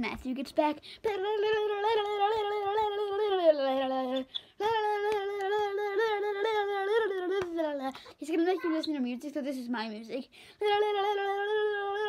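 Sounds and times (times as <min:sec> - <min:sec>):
boy singing long notes: 0:01.0 - 0:08.0, 0:10.6 - 0:12.0.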